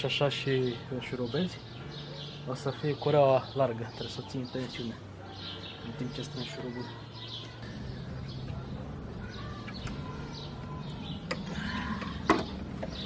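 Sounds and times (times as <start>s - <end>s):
birds chirping: 0.0s - 13.0s
low steady hum: 7.6s - 13.0s.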